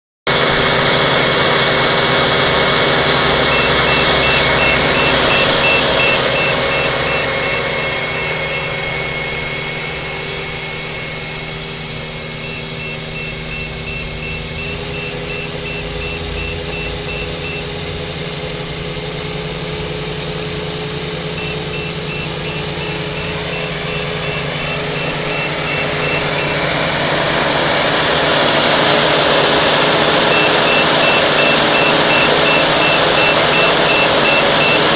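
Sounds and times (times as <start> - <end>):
electric motors and propellers whirring: 0.7 - 34.9
quick high electronic beeps: 3.4 - 9.5, 12.4 - 17.8, 21.3 - 26.8, 30.3 - 34.9.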